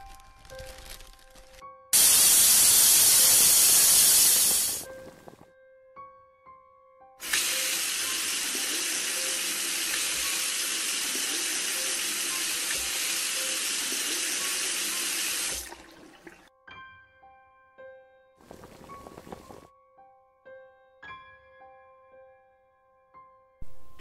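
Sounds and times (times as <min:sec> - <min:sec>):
tap running into sink: 0:07.2 - 0:16.4.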